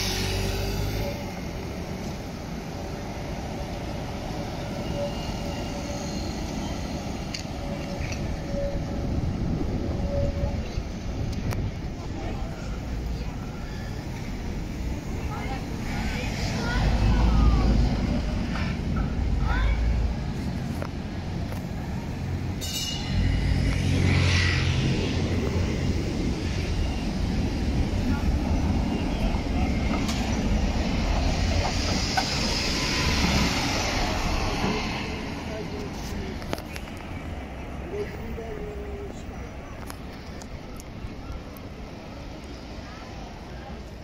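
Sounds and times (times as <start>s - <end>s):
tram wheels rumbling on rail: 0.0s - 44.0s
tram whine: 0.0s - 44.0s
short bright metallic ring: 22.6s - 23.2s.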